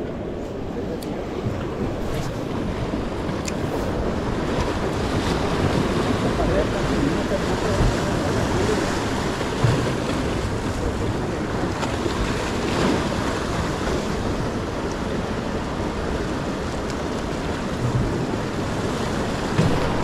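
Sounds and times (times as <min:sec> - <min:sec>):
surf breaking against rocks: 0:00.0 - 0:20.0
wind buffeting microphone: 0:00.0 - 0:20.0.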